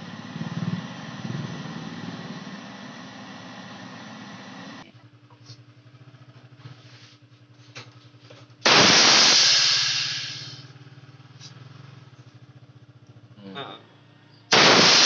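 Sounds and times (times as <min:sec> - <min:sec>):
gas hissing from pipe: 0:00.0 - 0:04.8, 0:08.6 - 0:10.7, 0:14.5 - 0:15.0
refrigerator compressor humming: 0:00.0 - 0:10.6.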